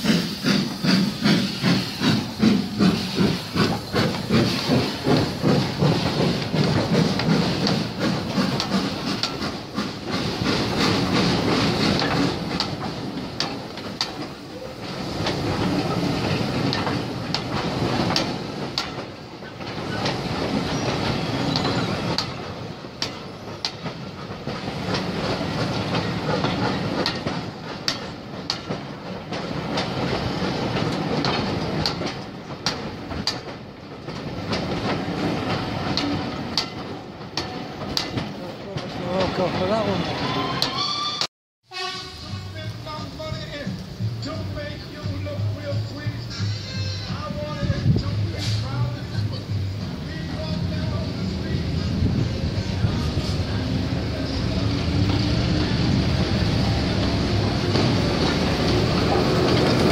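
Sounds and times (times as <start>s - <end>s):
train wheels clicking over rail joints: 0.0s - 40.0s, 42.6s - 59.9s.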